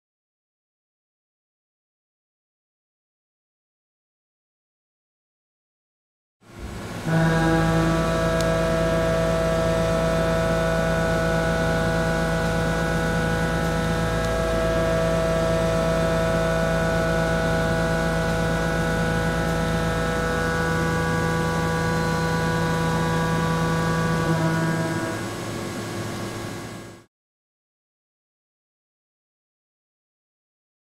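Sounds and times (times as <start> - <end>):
milling machine humming tone: 6.5 - 27.1.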